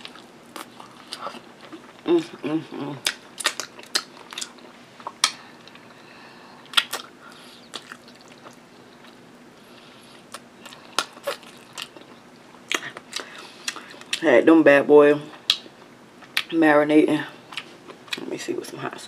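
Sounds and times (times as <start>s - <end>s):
chewing meat: 0.0s - 14.2s, 17.4s - 18.3s.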